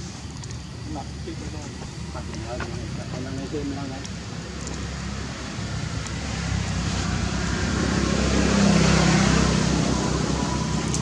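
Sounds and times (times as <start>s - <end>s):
vehicle engine passing by: 5.0s - 11.0s.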